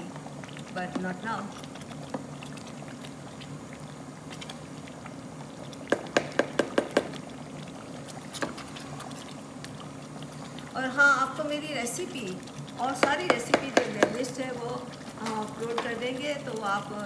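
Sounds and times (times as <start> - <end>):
stew simmering while stirred: 0.0 - 17.0
spatula knocking against pot: 5.9 - 7.2, 13.0 - 14.3.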